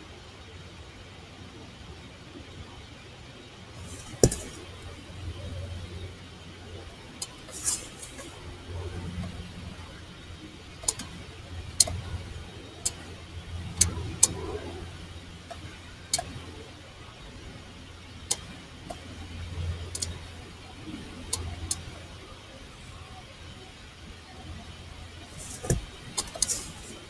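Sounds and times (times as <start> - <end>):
low unsteady hum: 0.0 - 27.0
sharp clicks: 10.8 - 11.2, 19.9 - 20.2.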